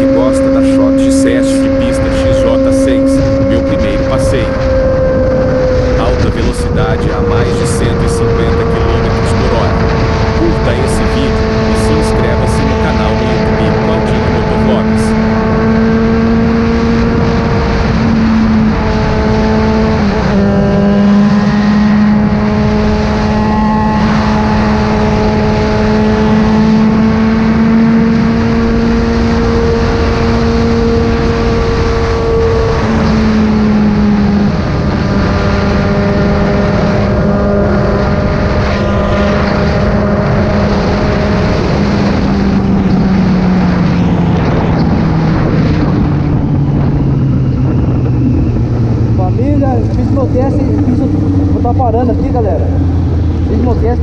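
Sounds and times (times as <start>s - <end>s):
motorcycle engine at high revs: 0.0s - 54.0s
wind rushing: 25.3s - 54.0s.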